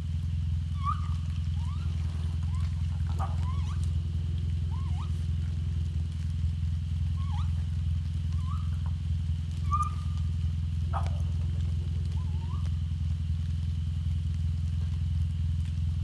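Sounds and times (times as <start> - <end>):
steady low drone: 0.0 - 16.0
raccoons chirping: 0.5 - 13.1.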